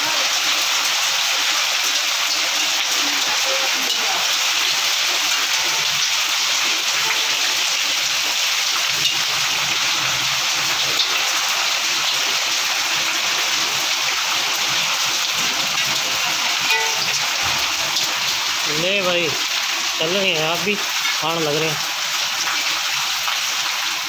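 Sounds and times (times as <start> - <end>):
hailstones ticking: 0.0 - 24.0
heavy rain on a roof: 0.0 - 24.0.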